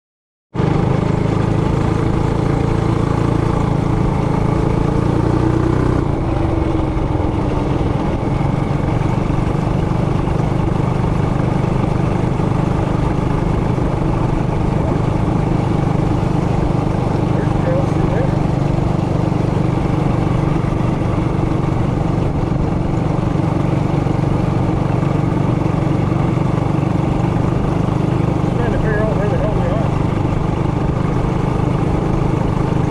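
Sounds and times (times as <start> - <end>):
mini bike engine running: 0.6 - 32.9.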